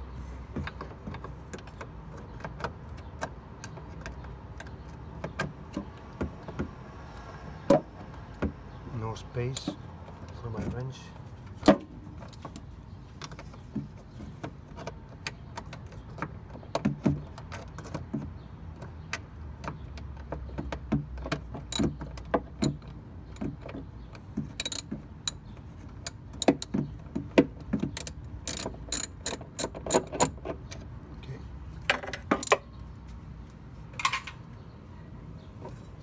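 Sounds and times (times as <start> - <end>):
tool knocking against metal: 24.4 - 25.4, 26.4 - 30.4
ratchet wrench clicking: 24.6 - 25.4, 28.0 - 30.4.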